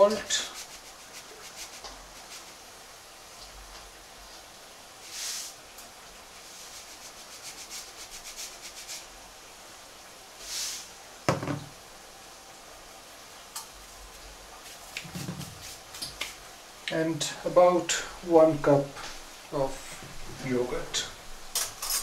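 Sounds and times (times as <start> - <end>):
salt shaking into jug: 0.0 - 2.6, 6.5 - 9.1
container knocked on worktop: 11.3 - 11.7, 15.0 - 15.6.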